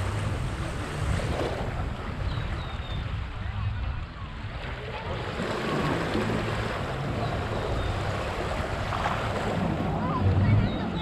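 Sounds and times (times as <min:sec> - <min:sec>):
small waves washing in shallows: 0:00.0 - 0:11.0.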